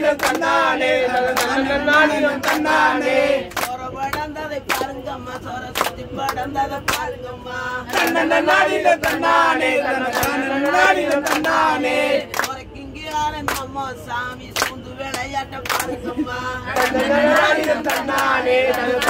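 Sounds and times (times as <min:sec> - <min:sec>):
group singing folk song: 0:00.0 - 0:19.0
hand claps: 0:00.1 - 0:02.8, 0:03.5 - 0:05.1, 0:05.7 - 0:07.2, 0:07.9 - 0:08.3, 0:09.0 - 0:09.4, 0:10.0 - 0:11.6, 0:12.2 - 0:13.8, 0:14.4 - 0:16.2, 0:16.8 - 0:19.0.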